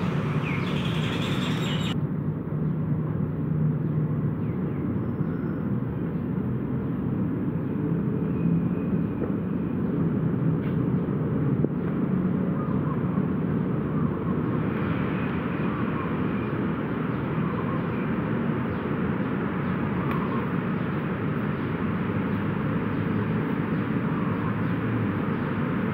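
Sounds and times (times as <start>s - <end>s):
low outdoor rumble: 0.0s - 2.0s.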